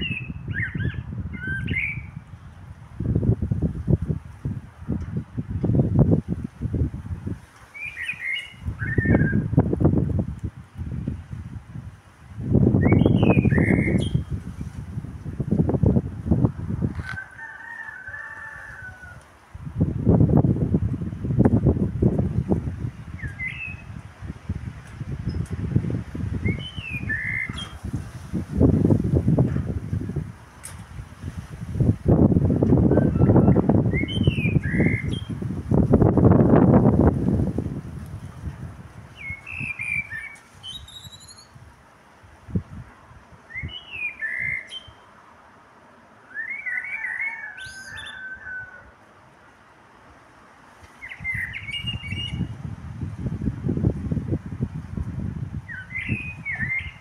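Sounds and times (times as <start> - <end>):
blackbird singing fluting whistles: 0.0 - 2.2, 7.8 - 9.4, 12.8 - 14.3, 23.2 - 23.9, 26.4 - 27.8, 33.0 - 35.3, 39.2 - 41.6, 43.5 - 45.0, 46.3 - 48.3, 51.0 - 52.5, 55.7 - 57.0.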